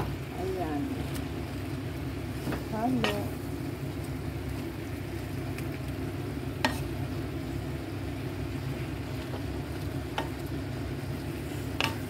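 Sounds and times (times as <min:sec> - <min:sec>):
steady low hum: 0:00.0 - 0:12.0
vegetables sizzling in a frying pan: 0:00.0 - 0:12.0.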